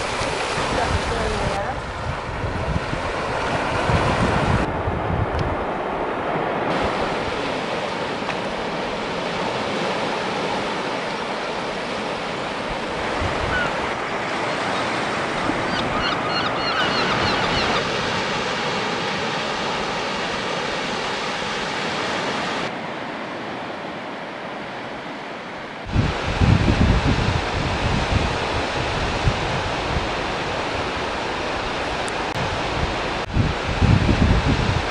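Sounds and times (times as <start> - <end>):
sea washing on rocky shore: 0.0 - 5.0, 5.6 - 22.8, 25.8 - 34.9
wind: 0.0 - 34.9
high bird calls: 15.6 - 17.8.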